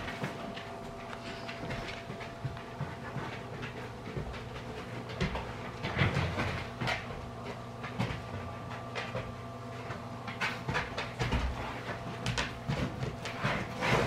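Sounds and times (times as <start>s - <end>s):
dogs sniffing and shuffling: 0.0s - 14.0s
steady low hum: 0.0s - 14.0s.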